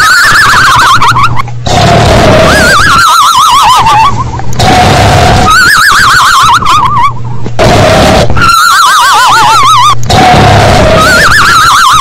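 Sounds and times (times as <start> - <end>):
warbling whistle falling in pitch: 2.6 - 4.2.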